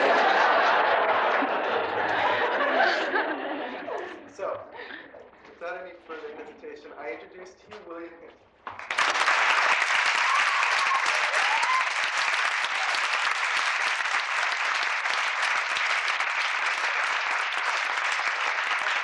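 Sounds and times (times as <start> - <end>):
audience applauding: 0.0 - 3.1, 8.7 - 19.0.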